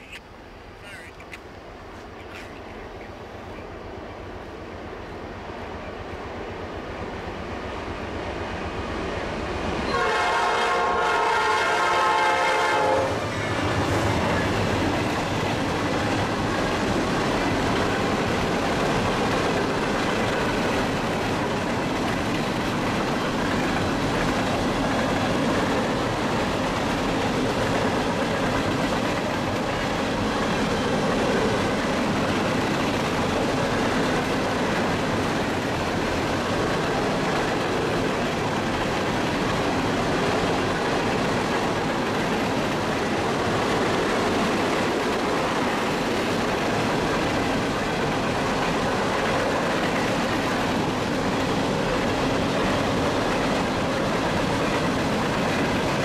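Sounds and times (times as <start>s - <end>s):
locomotive horn blast: 9.9s - 13.2s.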